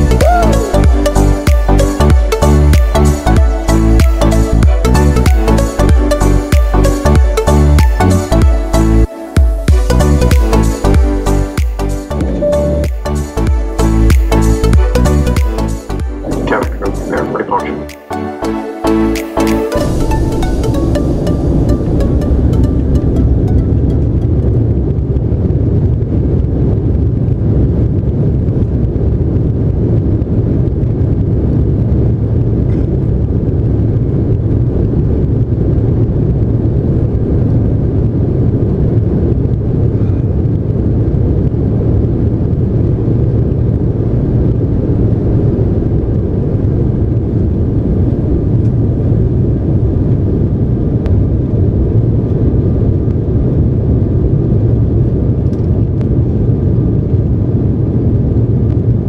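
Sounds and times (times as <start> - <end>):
jet engines in aircraft cabin: 19.8 - 59.0.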